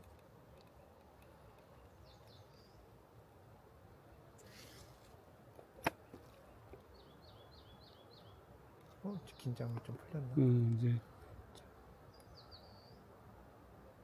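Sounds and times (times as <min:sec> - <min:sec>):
brief rustle: 0:04.4 - 0:05.2
faint high bird chirps: 0:12.1 - 0:13.1.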